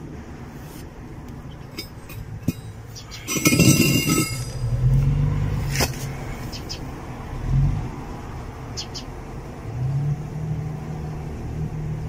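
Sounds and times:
low steady hum: 0.0s - 6.4s
light metallic clinks: 1.7s - 4.8s.

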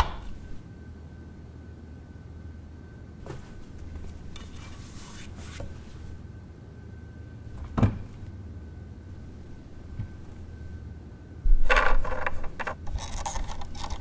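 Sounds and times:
felt mat rustling: 3.2s - 6.2s.

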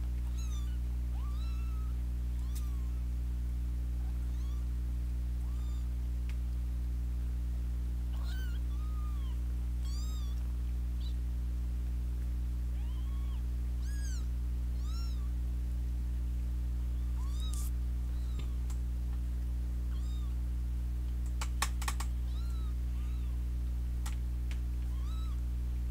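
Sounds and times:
steady low hum: 0.0s - 25.9s
kittens mewing: 0.2s - 3.1s, 4.0s - 4.7s, 5.4s - 6.0s, 8.1s - 10.4s, 11.0s - 11.2s, 12.7s - 15.4s, 16.9s - 18.7s, 19.9s - 20.4s, 22.0s - 23.4s, 24.8s - 25.4s.

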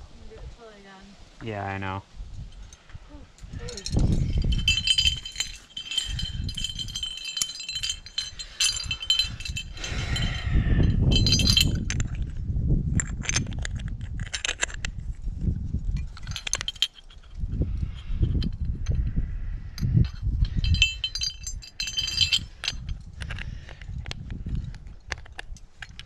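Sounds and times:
metal climbing gear jangling: 2.4s - 15.2s, 15.9s - 19.1s, 19.8s - 26.0s.

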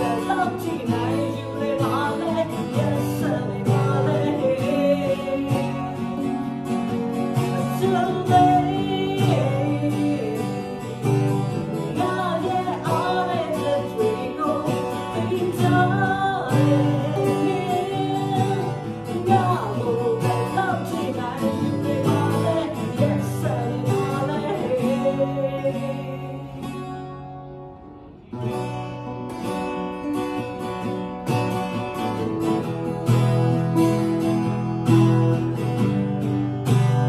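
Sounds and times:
woman singing a ballad: 0.0s - 27.2s
acoustic guitars: 0.0s - 37.0s.

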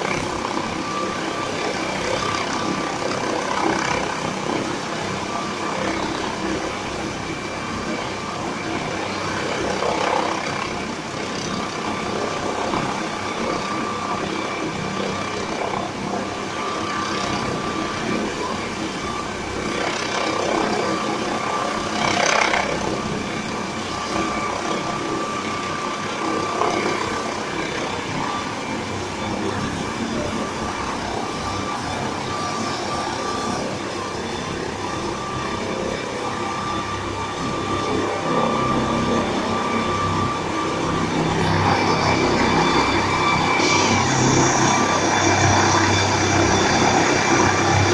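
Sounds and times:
helicopter turbine engines whining: 0.0s - 47.9s.

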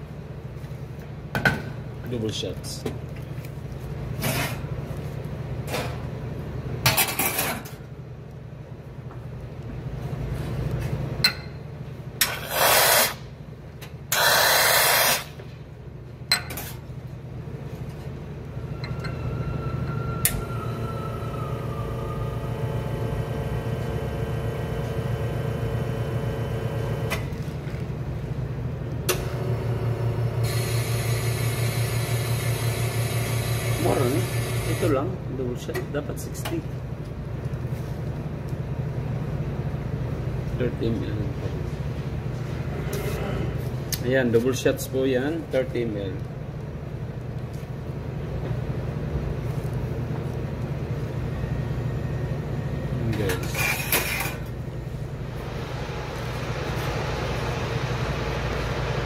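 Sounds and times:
espresso machine hisses: 14.2s - 15.3s, 30.4s - 34.9s
espresso machine pump hum: 20.6s - 27.2s, 29.2s - 34.9s, 55.1s - 59.0s.

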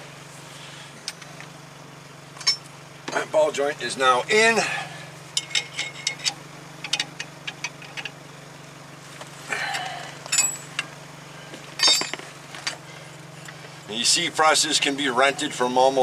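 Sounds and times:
steady low hum: 0.0s - 16.0s
metal tools clattering: 5.4s - 8.1s, 10.2s - 10.9s, 11.7s - 12.8s
metal tools clicking and clinking: 5.4s - 8.2s, 10.2s - 10.9s, 11.8s - 12.8s.

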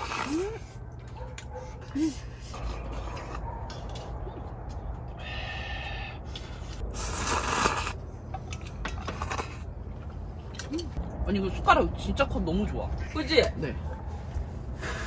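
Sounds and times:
person slurping noodles: 0.0s - 0.7s, 6.8s - 8.0s.

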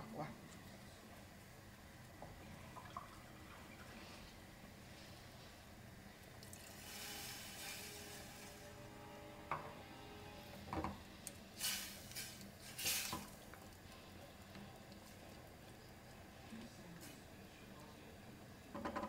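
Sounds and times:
pan hissing: 6.6s - 13.4s.

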